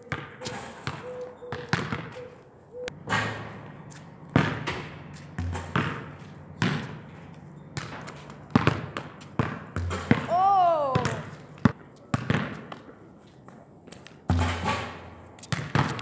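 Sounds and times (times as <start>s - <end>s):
football thuds on asphalt: 0.1s - 2.2s, 4.3s - 10.4s, 11.0s - 12.9s, 13.9s - 16.0s.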